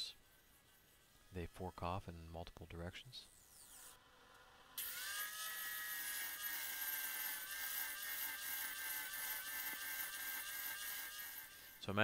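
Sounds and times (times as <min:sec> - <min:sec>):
angle grinder grinding steel: 0:04.8 - 0:12.0.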